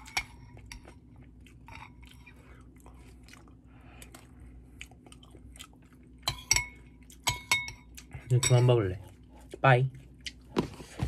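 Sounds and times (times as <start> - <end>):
close-up chewing: 0.0 - 6.3
faint low hum: 0.0 - 11.0.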